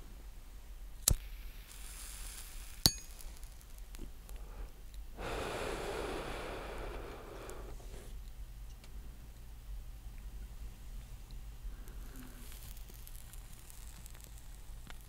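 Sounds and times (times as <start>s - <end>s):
breath on a cigarette: 4.3s - 8.2s, 11.6s - 15.0s.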